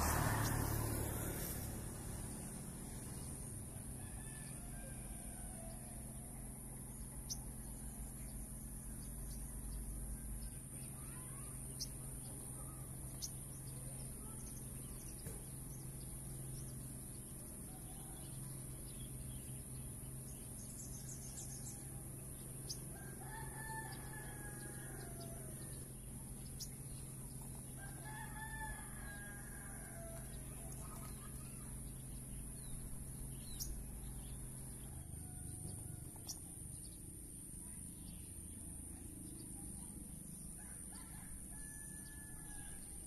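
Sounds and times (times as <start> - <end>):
rooster crowing: 3.8 - 6.2, 22.9 - 25.8, 27.8 - 30.4, 40.6 - 43.0.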